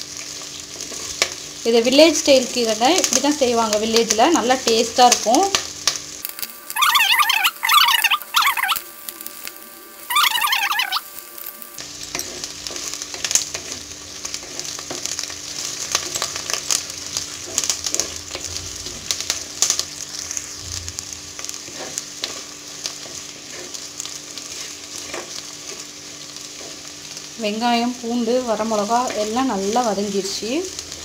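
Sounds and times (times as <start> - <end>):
food sizzling in oil: 0.0 - 31.0.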